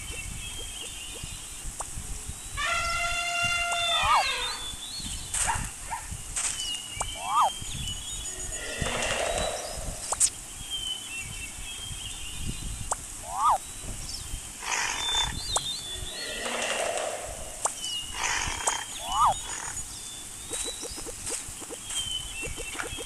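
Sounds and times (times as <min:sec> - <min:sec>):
rough animal calls: 0:02.6 - 0:04.8, 0:07.1 - 0:07.5, 0:08.3 - 0:10.2, 0:13.2 - 0:13.6, 0:14.6 - 0:19.8
quick rising chirp: 0:15.0 - 0:19.7.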